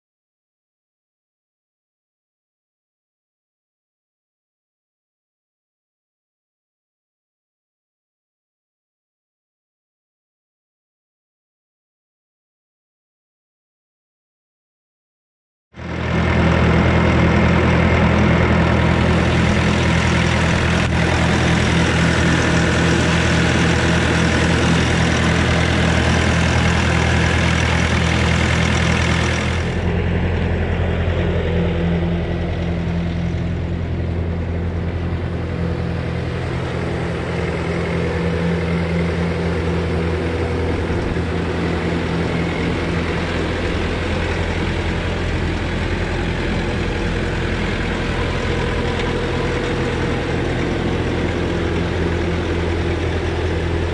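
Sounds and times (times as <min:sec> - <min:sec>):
diesel engine running: 0:15.8 - 0:53.9.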